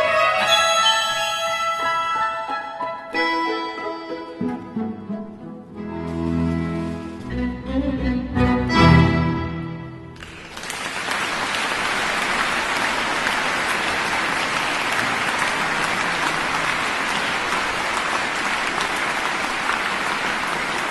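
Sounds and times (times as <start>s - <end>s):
strings and winds chord: 0.3s - 10.2s
audience applauding: 10.1s - 20.9s.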